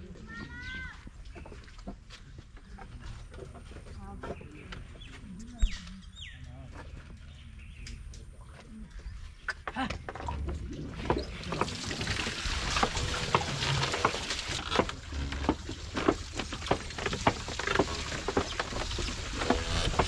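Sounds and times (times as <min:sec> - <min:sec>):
wooden gearing clacking and creaking: 0:09.9 - 0:20.0.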